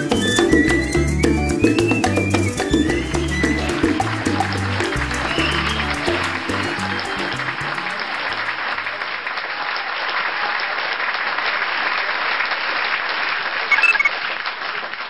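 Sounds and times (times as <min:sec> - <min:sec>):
music: 0:00.0 - 0:09.2
theatre audience applauding: 0:00.0 - 0:15.0
brief sharp sound: 0:13.7 - 0:14.1.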